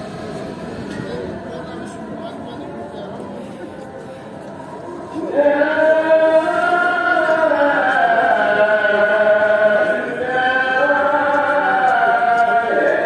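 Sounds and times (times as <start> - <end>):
person chanting long sliding notes: 0.0 - 13.0.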